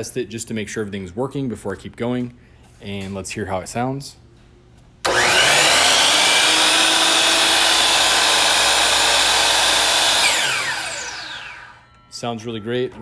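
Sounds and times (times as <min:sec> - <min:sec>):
miter saw motor whining: 0:05.1 - 0:11.9.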